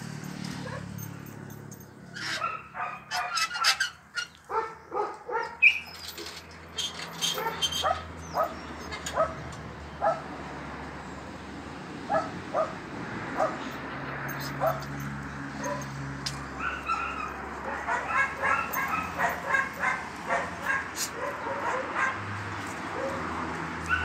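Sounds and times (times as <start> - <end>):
dogs barking: 0.5 - 1.0, 2.2 - 5.9, 7.2 - 10.3, 12.0 - 24.0.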